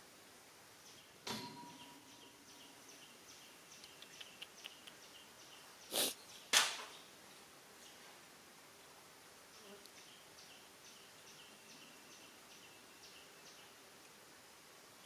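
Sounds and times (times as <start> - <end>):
monkey loud huffs: 5.9 - 6.2.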